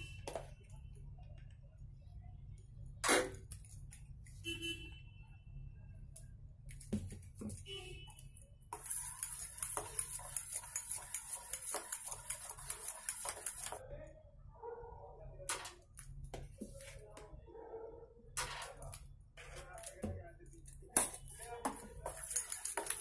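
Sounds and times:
spoon whisking batter in metal bowl: 8.2s - 13.8s, 19.5s - 23.0s.

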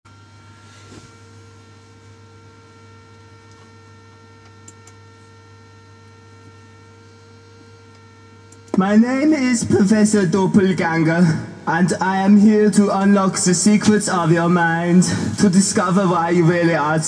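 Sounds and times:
electrical mains hum: 0.1s - 17.0s
soft rustle: 0.6s - 1.2s.

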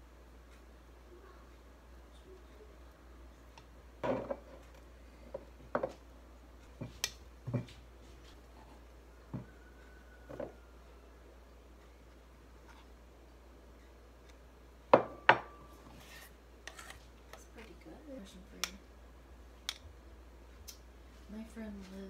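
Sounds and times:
glass dish knocking on wood: 15.0s - 15.5s.

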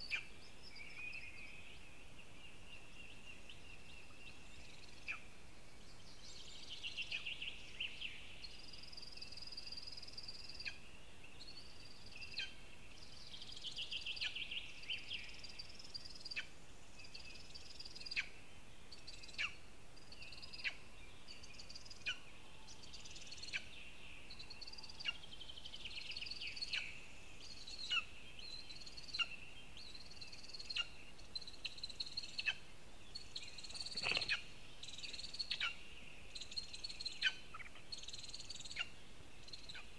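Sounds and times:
birds trilling and whistling: 20.2s - 39.9s
wing flapping: 33.7s - 34.4s.

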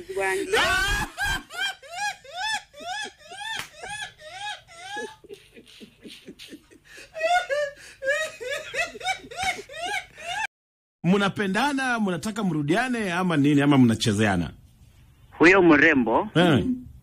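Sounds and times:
high-pitched voice crying: 0.0s - 5.4s.

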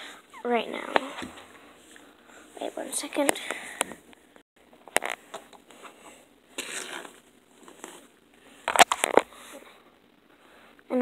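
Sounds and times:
soft rustle: 5.0s - 9.6s.

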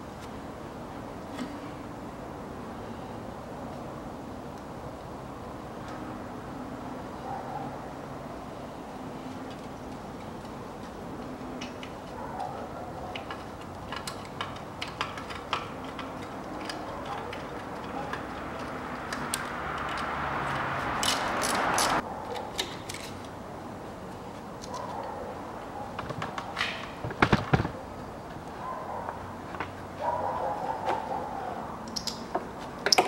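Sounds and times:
cable and brackets clicking: 11.2s - 23.4s.

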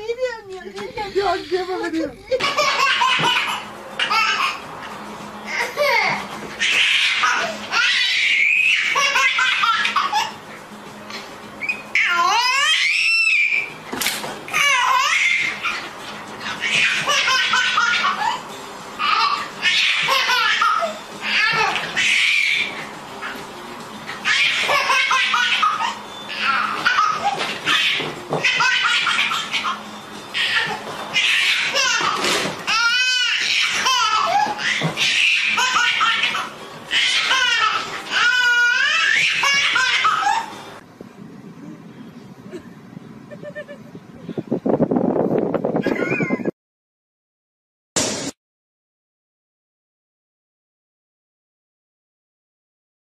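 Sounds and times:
baby laughing: 1.9s - 4.6s, 5.5s - 10.4s, 14.6s - 23.4s, 24.2s - 29.8s, 30.4s - 40.6s.

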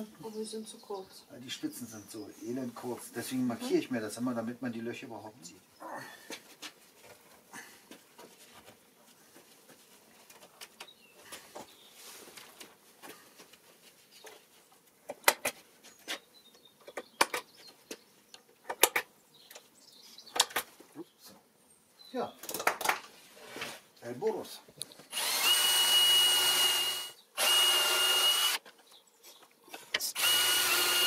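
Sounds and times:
sharp clicks in quick pairs: 15.1s - 15.6s, 16.8s - 18.0s, 18.6s - 19.7s.

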